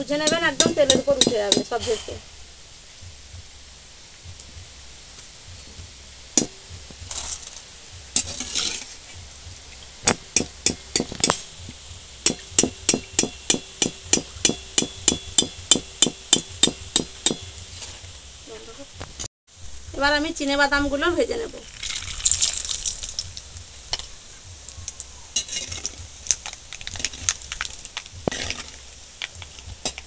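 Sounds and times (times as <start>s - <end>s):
fried dal rustling into bowl: 21.6s - 30.0s.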